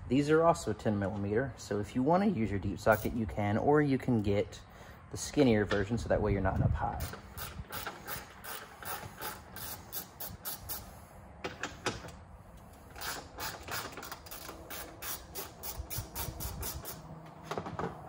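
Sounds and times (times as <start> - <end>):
socket ratchet clicking: 7.0 - 10.8, 12.9 - 17.0.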